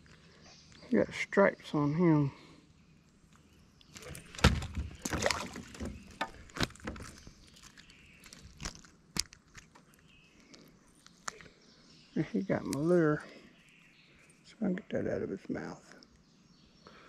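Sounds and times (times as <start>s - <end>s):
handling knocks and rustles: 3.9s - 11.4s.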